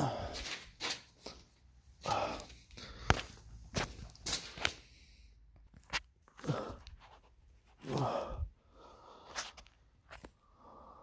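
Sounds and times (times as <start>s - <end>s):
person grunting with effort: 7.8s - 8.5s.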